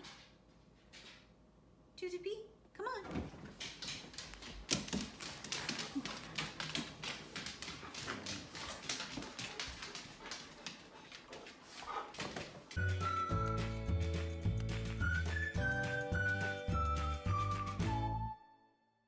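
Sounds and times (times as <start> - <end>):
dog claws clicking on hard floor: 3.3 - 12.8.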